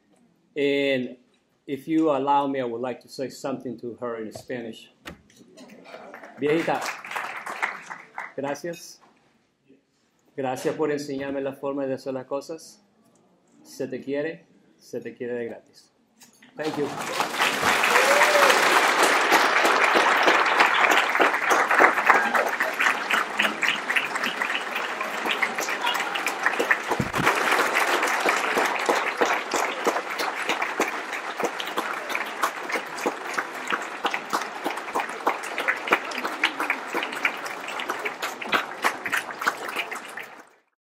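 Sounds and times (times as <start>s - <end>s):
audience applauding: 5.7s - 8.4s, 16.6s - 40.7s.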